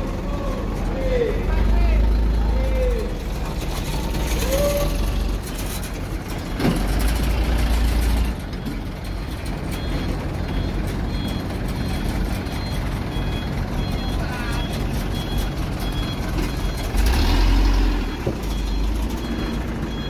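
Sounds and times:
diesel engines rumbling: 0:00.0 - 0:20.0
faint high beeps: 0:09.7 - 0:17.0.

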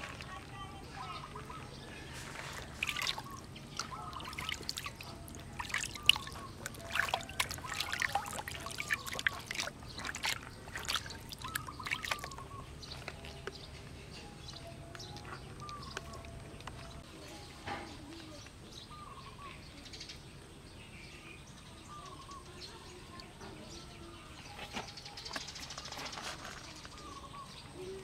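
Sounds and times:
water splashing and trickling: 0:00.0 - 0:17.1.

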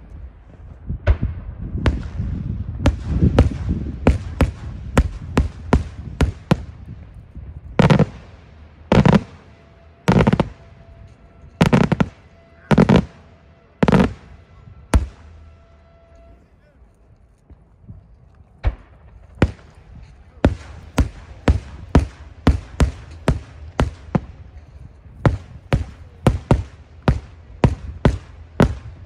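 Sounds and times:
firework shells bursting: 0:07.8 - 0:10.6, 0:11.6 - 0:14.3.

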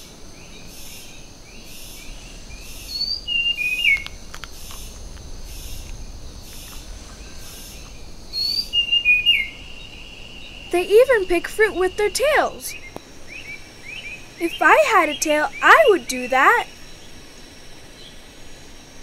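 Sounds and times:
high insect whine: 0:00.0 - 0:19.0
insect pulsing: 0:00.0 - 0:19.0
bird whistling: 0:02.0 - 0:05.0, 0:06.6 - 0:16.7.

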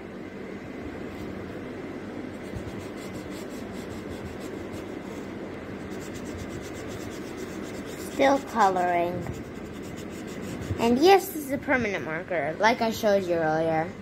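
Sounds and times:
marker scribbling on paper: 0:02.5 - 0:11.0.

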